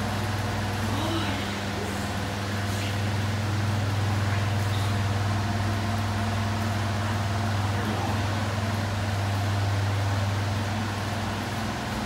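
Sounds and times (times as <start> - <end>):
electric floor fans humming: 0.0 - 12.0.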